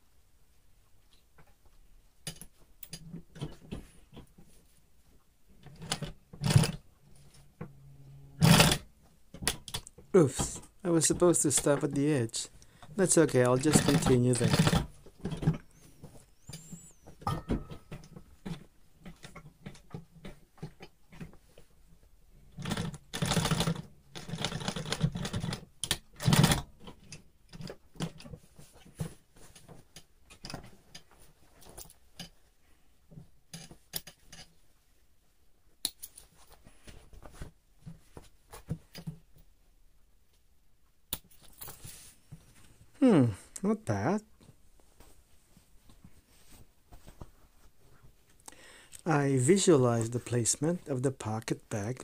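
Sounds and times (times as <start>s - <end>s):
sewing machine stitching: 5.8s - 6.8s, 8.0s - 8.9s, 13.6s - 15.0s, 22.5s - 26.6s.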